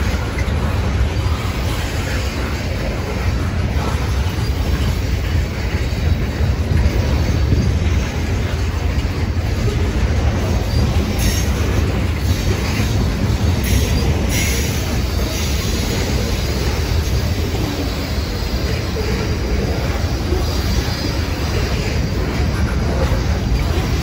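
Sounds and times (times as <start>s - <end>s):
steel train wheels rumbling on rails: 0.0s - 24.0s.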